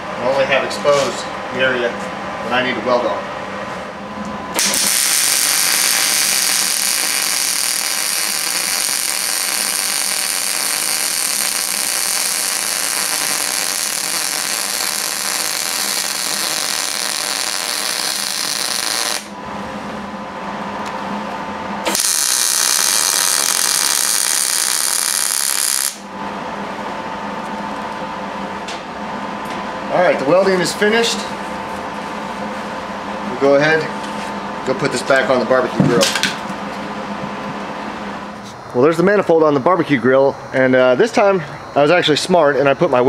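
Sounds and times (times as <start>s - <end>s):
steady hum: 0.0s - 43.0s
welding arc sizzling: 4.5s - 19.4s, 21.8s - 26.1s.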